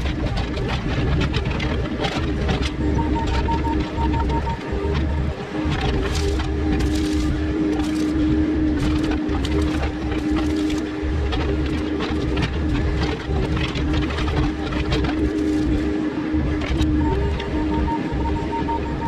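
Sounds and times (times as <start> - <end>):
excavator engine with hydraulic whine: 0.0 - 19.0
branches snapping and cracking: 5.7 - 15.9.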